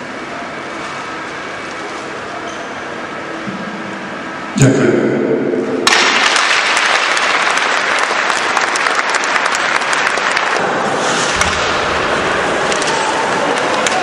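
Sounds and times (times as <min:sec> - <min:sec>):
crowd applauding: 0:05.9 - 0:11.0, 0:11.6 - 0:14.0.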